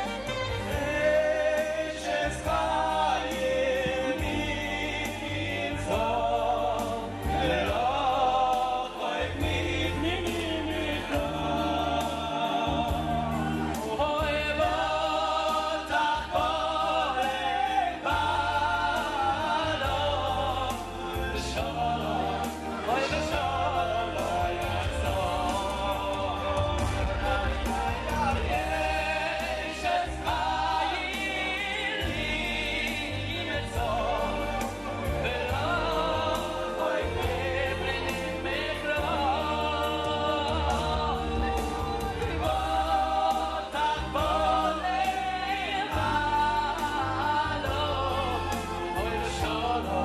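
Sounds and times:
held bass notes: 0:00.0 - 0:50.0
man singing into microphone: 0:00.6 - 0:50.0.

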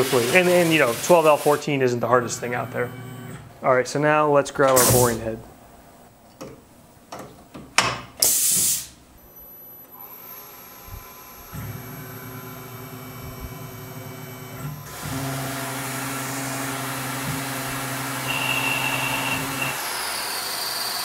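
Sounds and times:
mill spindle motor hum: 0:09.4 - 0:21.0.

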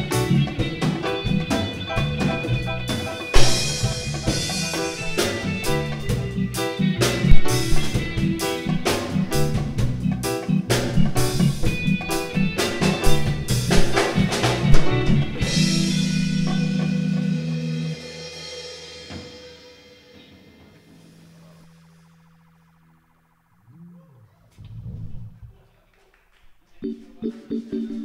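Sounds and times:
electric bass: 0:00.0 - 0:19.8, 0:20.7 - 0:25.6
drum kit: 0:00.0 - 0:22.2
electric guitar: 0:00.0 - 0:23.6.

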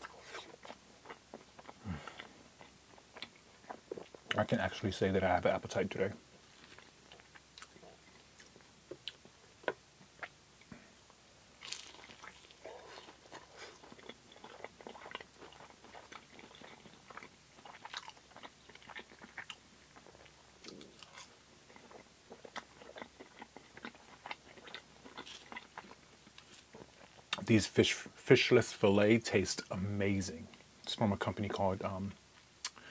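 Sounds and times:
chewing crunchy fried food: 0:00.0 - 0:04.6, 0:05.7 - 0:10.8, 0:11.6 - 0:27.5.

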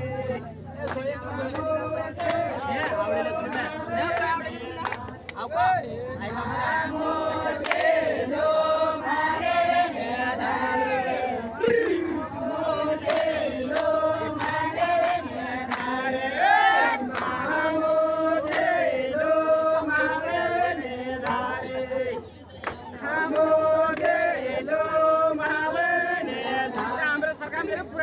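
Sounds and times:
voices chanting drawn-out notes: 0:06.5 - 0:22.3.

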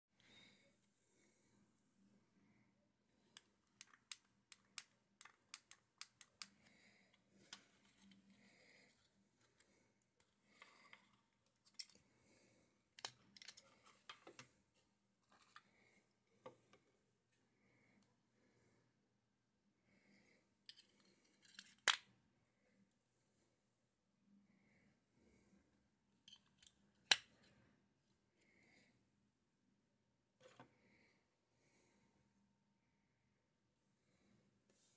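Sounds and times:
plastic clicks and snaps: 0:03.3 - 0:06.7
soft handling rustle: 0:07.1 - 0:12.1, 0:13.0 - 0:17.4.

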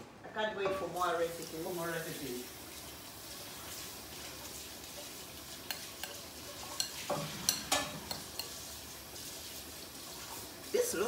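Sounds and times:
spoon stirring thick sauce: 0:02.8 - 0:10.6
spoon clinking on ceramic bowl: 0:05.7 - 0:08.6.

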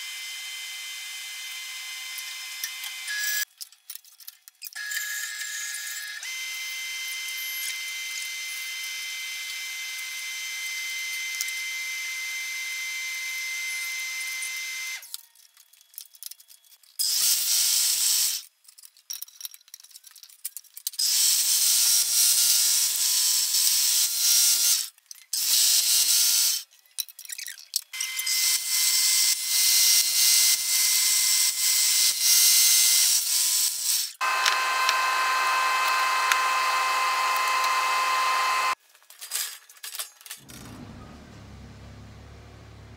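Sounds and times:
belt and disc sander running: 0:34.2 - 0:38.8
wood grinding against sanding disc: 0:34.2 - 0:38.8.

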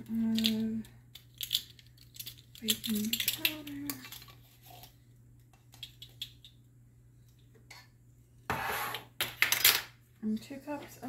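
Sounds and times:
plastic spoons clicking and clattering: 0:00.2 - 0:04.9, 0:05.6 - 0:06.6.

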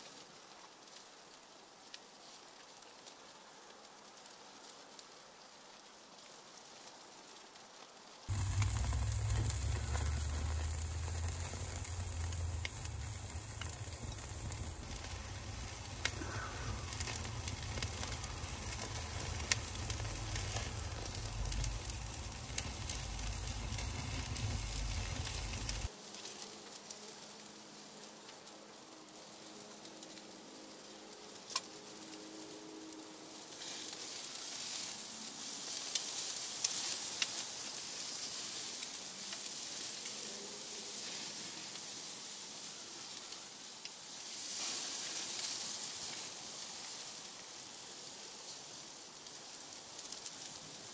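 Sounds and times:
low rumble: 0:08.3 - 0:25.9
sharp pops and crackles: 0:08.3 - 0:25.9
steak sizzling on a grill: 0:08.3 - 0:25.9, 0:33.6 - 0:47.4.

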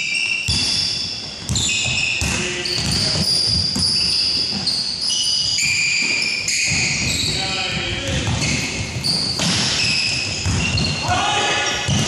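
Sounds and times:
ball bouncing: 0:00.5 - 0:04.7, 0:05.4 - 0:11.1
shoes squeaking on hardwood: 0:01.0 - 0:11.1.

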